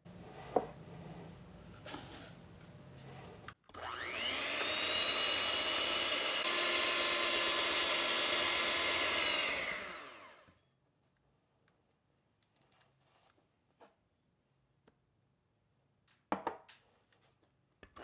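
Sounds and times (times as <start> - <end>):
electric hand mixer whirring: 3.7 - 10.6.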